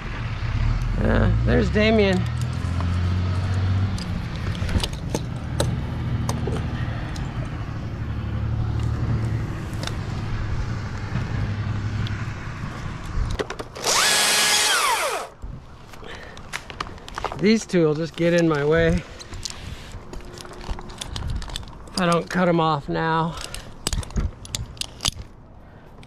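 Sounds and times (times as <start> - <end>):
vehicle engine rumble: 0.0 - 26.0
climbing gear clicks and scrapes: 2.1 - 7.5, 15.9 - 22.4, 23.2 - 26.0
battery chainsaw revving: 13.8 - 15.4.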